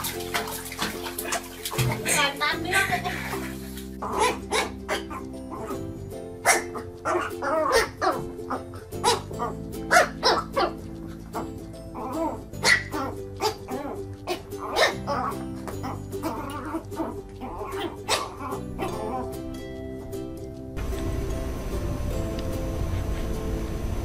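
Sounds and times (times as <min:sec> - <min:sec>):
background music: 0:00.0 - 0:24.0
puppy yapping: 0:04.0 - 0:05.8, 0:06.4 - 0:19.3.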